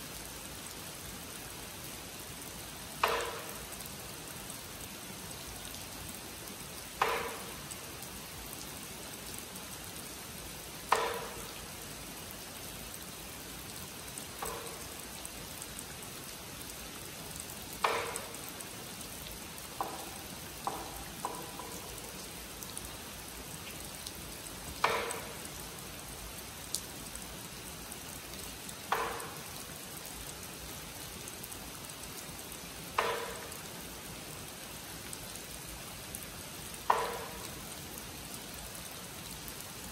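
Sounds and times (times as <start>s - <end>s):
rain falling on pond and foliage: 0.0s - 39.9s
wooden clapper knocks: 3.0s - 3.6s, 7.0s - 7.5s, 10.9s - 11.4s, 17.8s - 18.4s, 19.8s - 22.0s, 24.8s - 25.4s, 28.9s - 29.4s, 33.0s - 33.5s, 36.9s - 37.4s.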